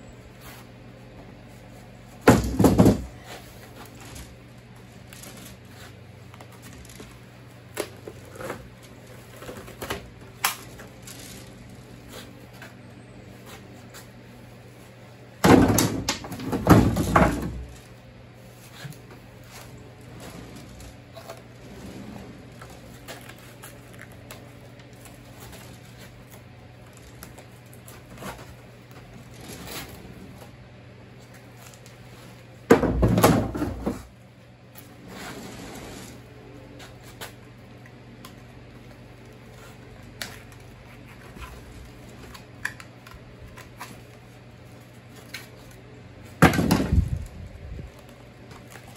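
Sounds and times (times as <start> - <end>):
knocking and scraping on wood: 2.2 - 3.3.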